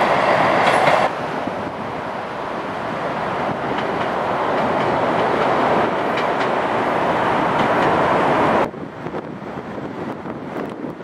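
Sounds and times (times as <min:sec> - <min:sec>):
train wheels rumbling on rail: 0:00.0 - 0:11.0
wind noise on microphone: 0:00.0 - 0:11.0
faint rail clacks: 0:00.5 - 0:01.2, 0:03.6 - 0:06.8, 0:07.4 - 0:08.2.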